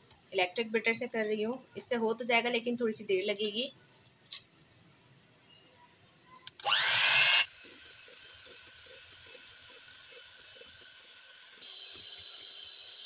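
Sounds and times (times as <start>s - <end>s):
electric hand mixer whirring: 6.6s - 13.0s.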